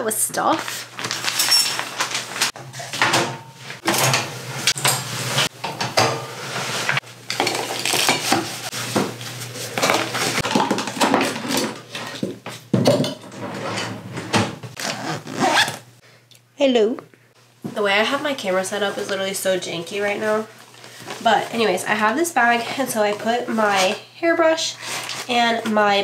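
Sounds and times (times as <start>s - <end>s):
bottles clattering on counter: 9.8s - 13.4s.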